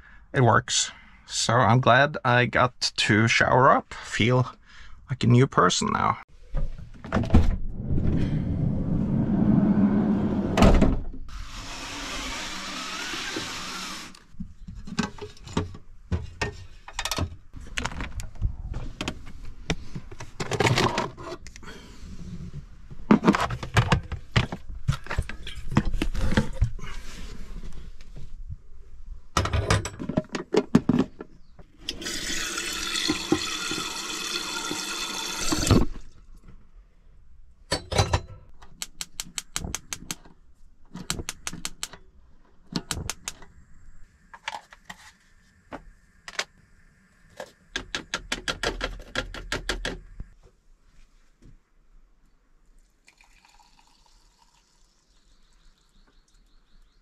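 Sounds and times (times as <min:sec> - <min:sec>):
knocks and clatter of handling: 0:14.4 - 0:21.4, 0:23.0 - 0:26.8, 0:29.4 - 0:31.4, 0:37.7 - 0:38.8.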